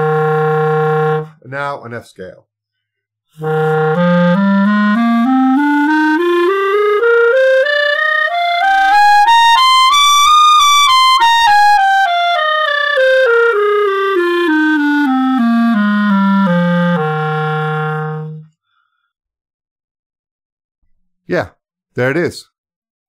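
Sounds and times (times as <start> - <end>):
flutter-tongued clarinet scale: 0.0 - 1.4, 3.4 - 18.5.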